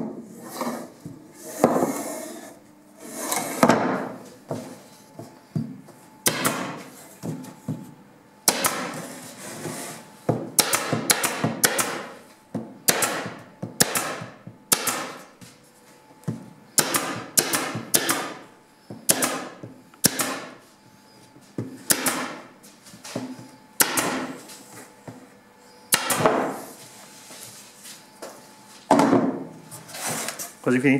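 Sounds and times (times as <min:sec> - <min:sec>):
pneumatic nail gun firing: 0:06.3 - 0:06.7, 0:08.5 - 0:09.0, 0:10.6 - 0:12.2, 0:12.9 - 0:15.2, 0:16.8 - 0:18.4, 0:19.1 - 0:20.6, 0:21.9 - 0:22.4, 0:23.8 - 0:24.3, 0:25.9 - 0:26.6.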